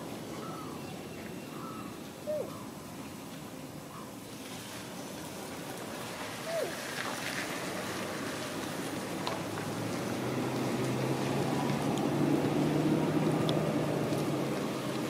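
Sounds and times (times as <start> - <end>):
background rumble and hiss: 0.0 - 15.0.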